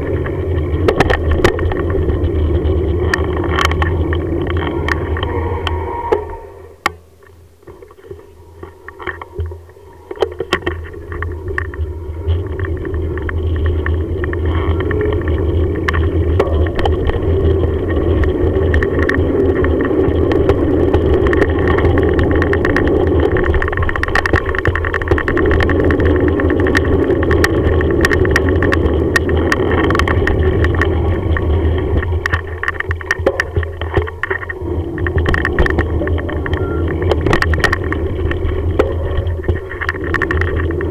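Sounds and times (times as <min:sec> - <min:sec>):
bicycle tyre rumble: 0:00.0 - 0:40.9
bike rattles and clicks: 0:00.0 - 0:40.9
wind buffeting microphone: 0:07.6 - 0:40.9.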